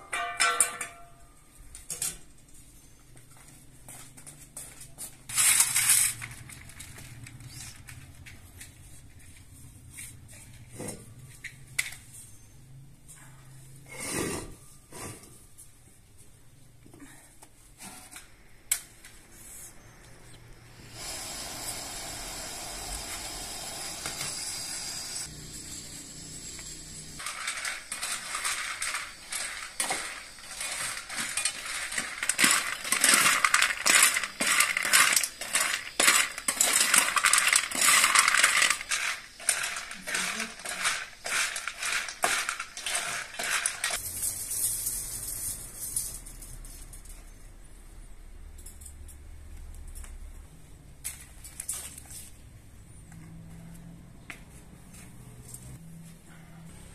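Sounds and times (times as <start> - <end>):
metal spatula scraping metal pan: 27.2 - 44.0.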